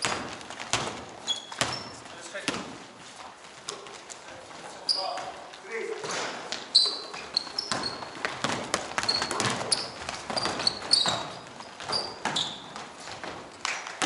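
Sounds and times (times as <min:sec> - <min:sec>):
basketball bouncing: 0:00.0 - 0:02.8, 0:06.5 - 0:13.5
sneakers squeaking on court: 0:00.0 - 0:02.9, 0:03.6 - 0:13.5
feet hitting court floor: 0:00.0 - 0:14.0.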